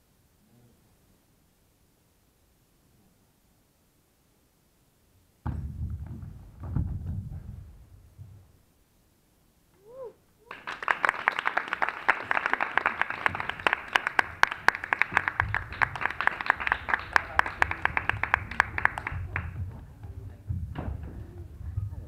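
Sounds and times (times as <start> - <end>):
audience applause: 10.4 - 19.7.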